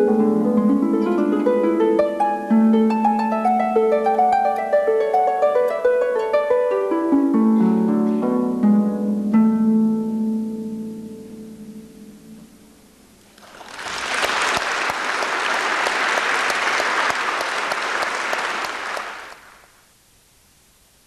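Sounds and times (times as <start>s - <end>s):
audience applauding: 13.3s - 19.7s.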